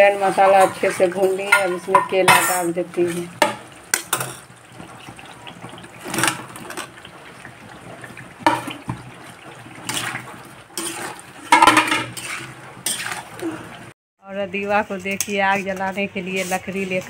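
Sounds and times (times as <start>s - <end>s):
metal ladle scraping pan: 0.0s - 13.9s
food sliding into frying pan: 8.4s - 13.9s.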